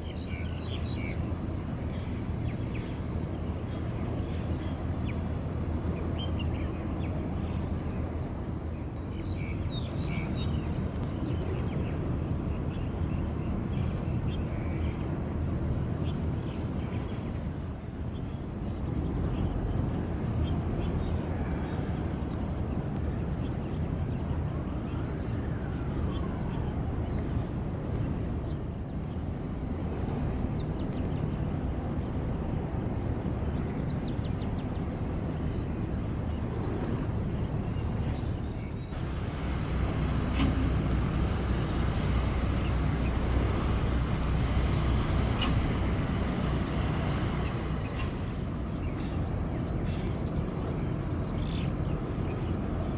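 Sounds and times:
birds chirping: 0.0s - 15.2s, 15.9s - 52.9s
ship engine rumble: 15.0s - 52.9s.

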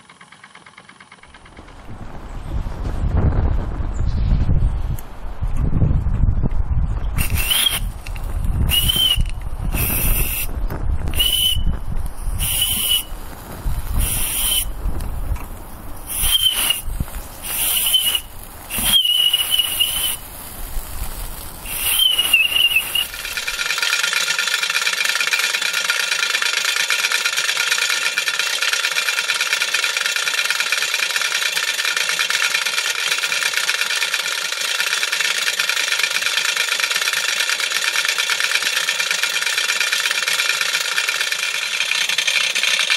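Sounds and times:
safety valve hissing steam: 7.2s - 8.0s, 8.7s - 10.5s, 11.2s - 11.6s, 12.2s - 14.8s, 16.0s - 23.8s
steam engine running: 7.2s - 42.9s.

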